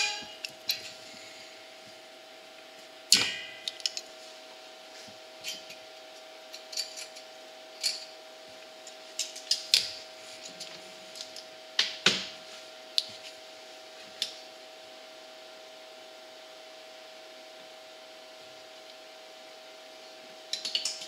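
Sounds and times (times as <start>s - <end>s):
faint steady hum: 0.0s - 21.0s
metallic clicks and clinks: 6.5s - 8.1s.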